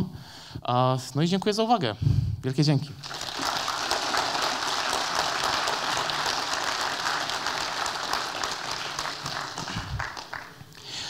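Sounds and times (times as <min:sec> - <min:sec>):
audience applauding: 0:03.0 - 0:11.0.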